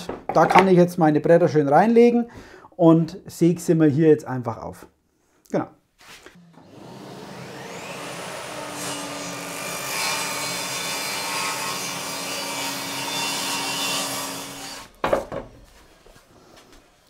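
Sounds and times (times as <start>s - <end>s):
table saw cutting board: 6.4s - 15.6s.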